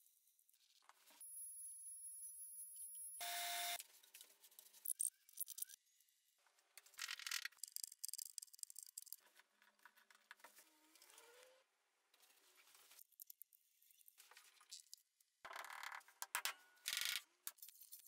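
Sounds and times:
wooden pieces clicking and rattling: 7.0s - 10.4s.

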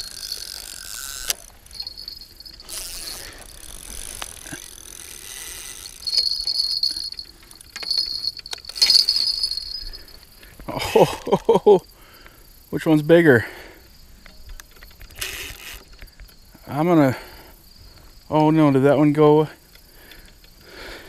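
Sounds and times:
fishing reels clicking: 0.0s - 10.4s, 14.2s - 16.7s, 19.6s - 21.0s
crickets chirring: 0.0s - 21.0s.

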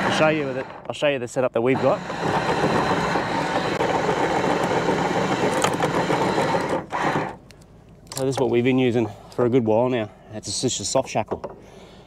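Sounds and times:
electric anchor windlass running: 0.0s - 7.6s.

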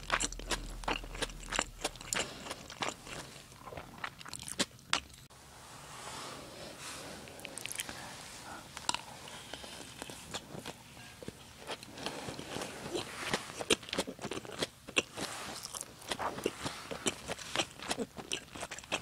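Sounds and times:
close chewing mouth clicks: 0.0s - 5.3s, 12.9s - 19.0s.

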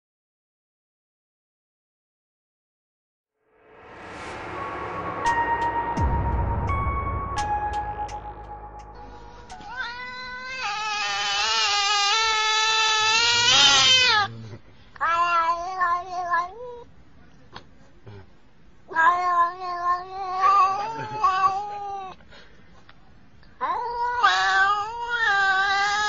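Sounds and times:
cat yowling: 9.5s - 14.3s, 15.0s - 16.9s, 18.9s - 22.2s, 23.6s - 26.0s.

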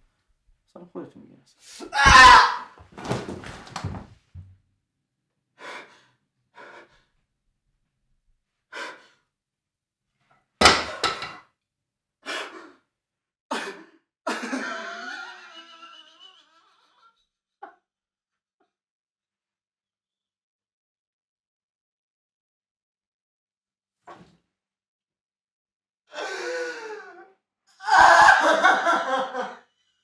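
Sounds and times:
man breathing and gasping: 5.6s - 7.1s, 8.7s - 9.2s.

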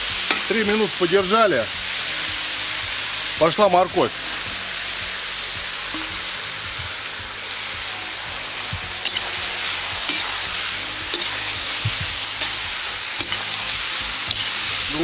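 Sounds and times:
food sizzling in hot oil: 0.0s - 15.0s
metal spoon scraping pot: 9.0s - 9.3s, 10.1s - 10.4s, 11.1s - 11.5s, 13.2s - 13.6s, 14.2s - 14.6s.

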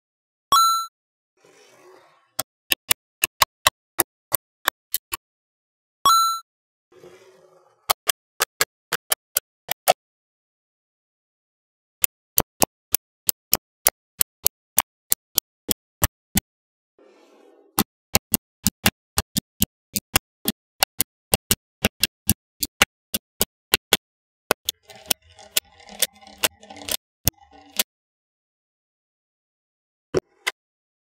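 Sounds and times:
magnetic balls clicking: 18.1s - 27.9s.

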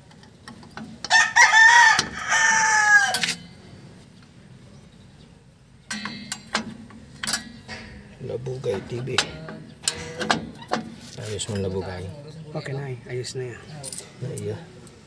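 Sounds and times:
metallic clicks of brake parts: 0.0s - 1.2s, 5.8s - 11.7s, 13.8s - 15.0s
rooster crowing: 1.1s - 3.3s.

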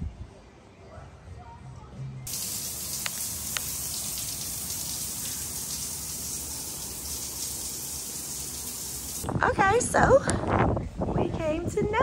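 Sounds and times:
shower water spraying: 2.3s - 9.3s.

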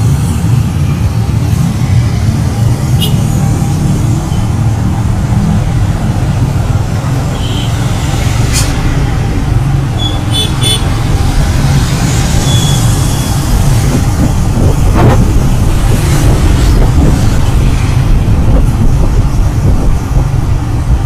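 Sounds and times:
wind buffeting microphone: 10.9s - 21.0s.

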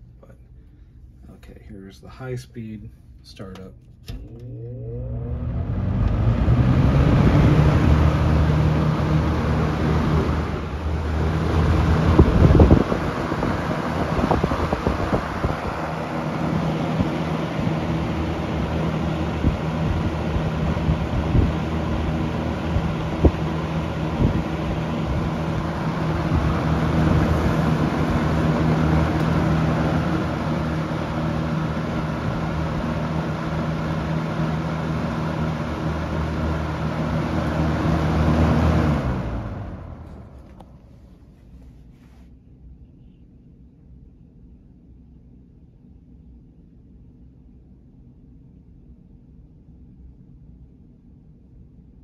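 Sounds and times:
fan air rushing: 0.0s - 52.0s
low motor hum: 3.9s - 41.7s.

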